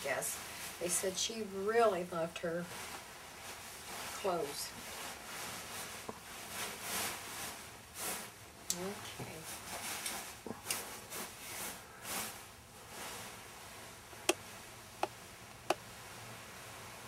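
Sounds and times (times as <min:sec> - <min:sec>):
gown skirt rustling: 0:00.0 - 0:08.4.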